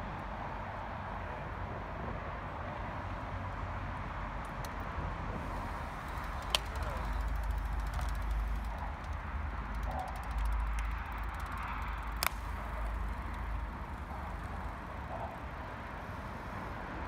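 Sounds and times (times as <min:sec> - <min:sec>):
bicycle freewheels ticking: 0:05.4 - 0:17.0
sharp click: 0:06.2 - 0:14.7.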